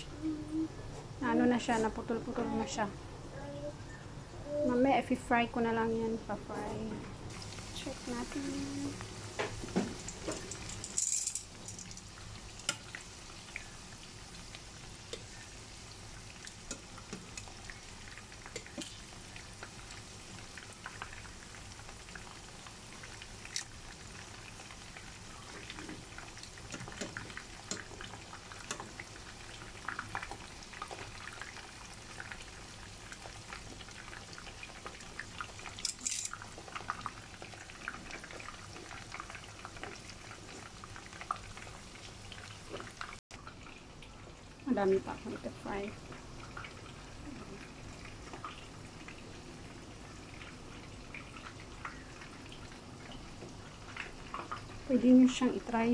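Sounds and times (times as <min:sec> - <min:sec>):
oil popping and crackling: 0:07.3 - 0:44.1
meat sizzling in oil: 0:07.3 - 0:55.9.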